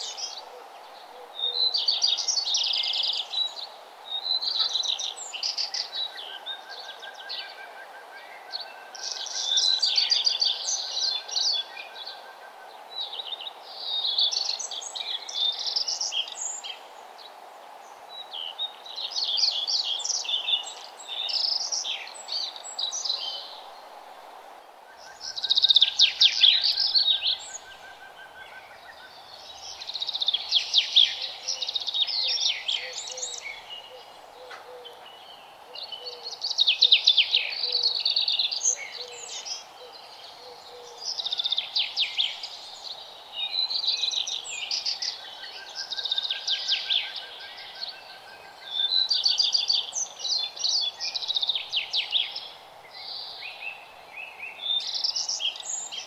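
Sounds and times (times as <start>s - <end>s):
steady low hiss: 0.0s - 56.0s
songbird trilling and chirping: 25.0s - 56.0s.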